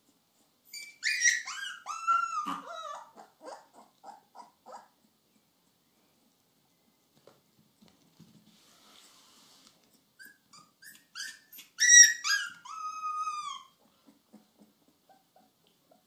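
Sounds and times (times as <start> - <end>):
puppy yipping: 0.6 - 5.0, 10.2 - 16.0
puppy howling: 1.0 - 4.8, 11.2 - 13.7.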